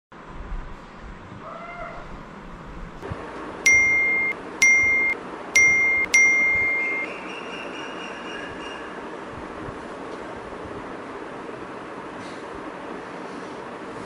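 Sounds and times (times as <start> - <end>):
phone notification beeps: 3.7 - 7.1.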